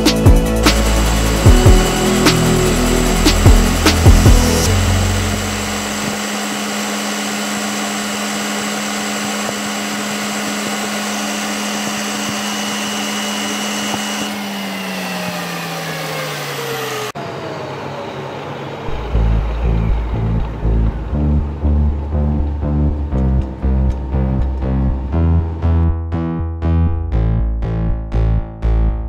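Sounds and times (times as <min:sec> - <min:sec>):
metal lathe motor hum: 0:00.0 - 0:25.6.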